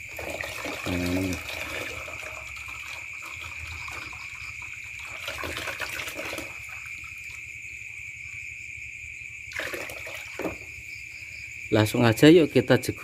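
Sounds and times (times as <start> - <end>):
hose splashing through water: 0.0 - 7.4, 9.5 - 10.7
hose water pouring into basin: 0.0 - 7.4, 9.5 - 10.7.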